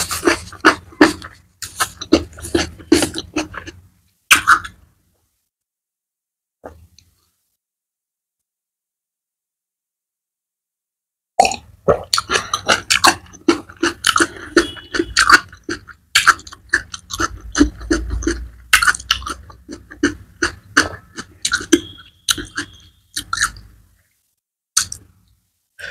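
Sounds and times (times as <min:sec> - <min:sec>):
tongue clicks: 0:24.8 - 0:25.0.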